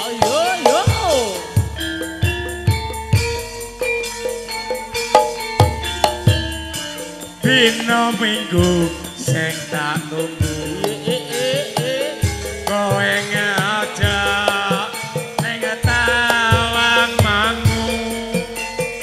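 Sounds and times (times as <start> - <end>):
metallophone notes: 0.0 - 19.0
person singing: 7.3 - 19.0.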